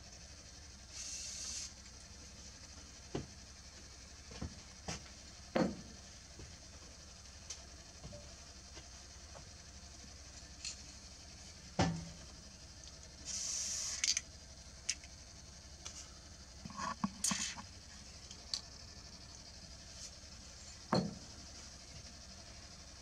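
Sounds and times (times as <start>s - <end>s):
short hiss: 0.9s - 1.8s, 13.2s - 14.2s.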